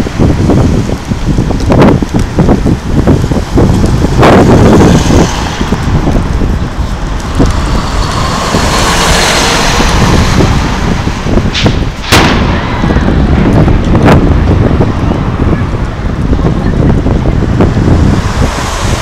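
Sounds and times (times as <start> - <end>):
wind noise on microphone: 0.0 - 19.0
fireworks banging: 3.7 - 16.6.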